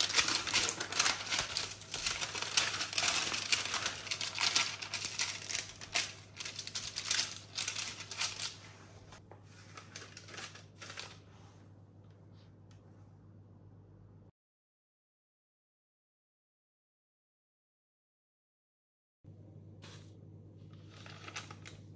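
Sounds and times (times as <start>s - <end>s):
parchment paper crinkling: 0.0s - 11.3s, 20.8s - 21.9s.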